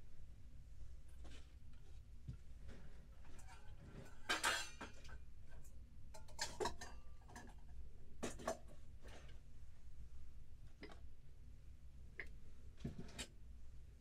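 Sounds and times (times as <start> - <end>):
kitchenware clinking and clattering: 3.3 - 8.7.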